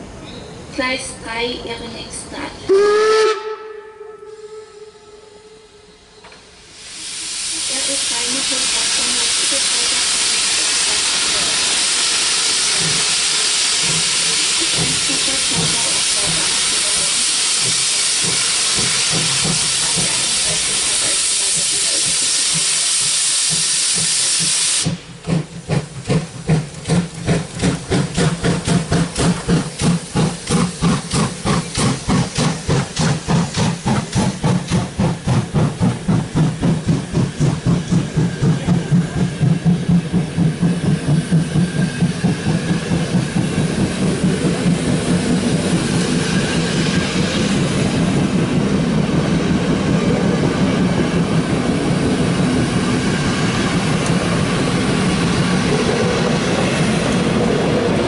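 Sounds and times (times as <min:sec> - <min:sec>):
steam hissing from locomotive: 0:06.4 - 0:58.0
steam locomotive exhaust chuffs: 0:06.6 - 0:58.0.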